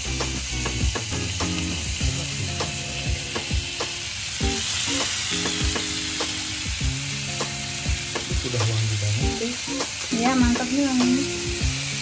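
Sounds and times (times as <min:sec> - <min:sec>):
squid sizzling in a pan: 0:00.0 - 0:12.0.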